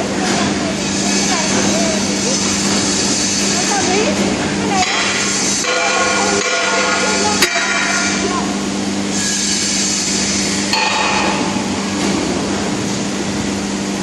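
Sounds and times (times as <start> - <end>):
steady machine hum: 0.0 - 14.0
metal clanks: 10.7 - 12.3.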